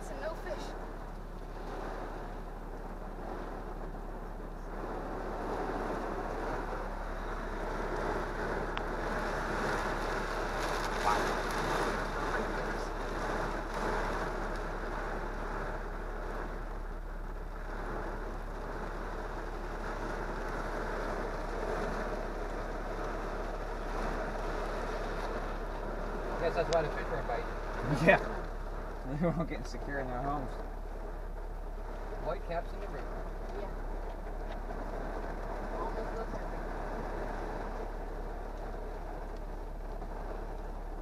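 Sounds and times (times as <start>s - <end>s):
rain and wind on truck: 0.0s - 41.0s
raindrops ticking on glass: 0.0s - 41.0s.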